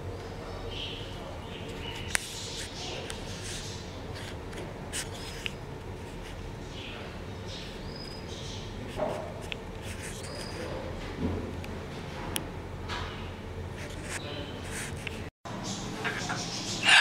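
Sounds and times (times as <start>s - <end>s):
high chirping calls: 15.5s - 17.0s.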